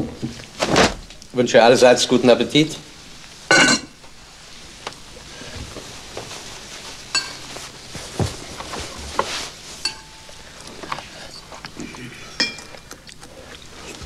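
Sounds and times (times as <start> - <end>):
cutlery clinking on dishes: 3.5 - 3.9, 7.2 - 7.5, 9.8 - 10.3, 12.3 - 12.8.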